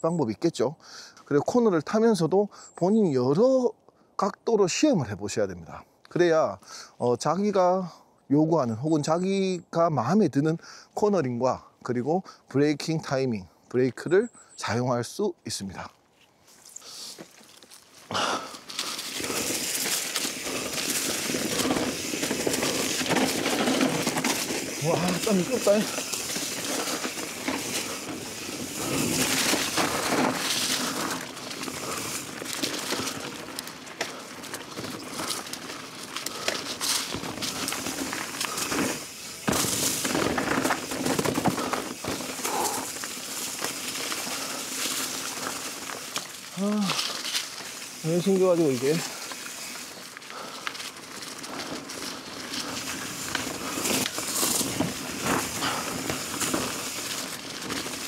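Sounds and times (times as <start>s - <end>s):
bike tyres crackling on gravel: 15.6s - 58.0s
bike clattering: 17.1s - 58.0s.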